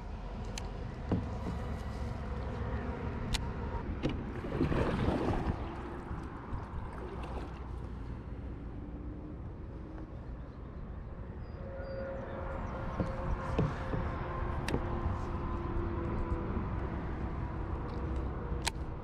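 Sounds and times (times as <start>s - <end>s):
kayak paddle splashing water: 4.2s - 8.0s.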